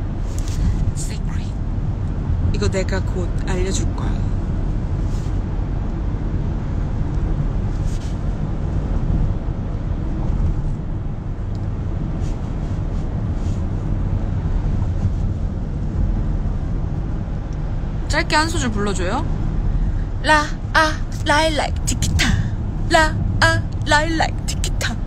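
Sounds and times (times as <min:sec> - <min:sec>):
vehicle rumble from inside cabin: 0:00.0 - 0:25.0.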